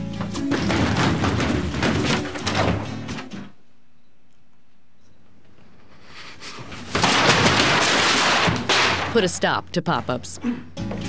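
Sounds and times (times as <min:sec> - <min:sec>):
balloons rubbing and bumping: 0:00.0 - 0:03.5
music: 0:00.0 - 0:03.6, 0:10.4 - 0:11.0.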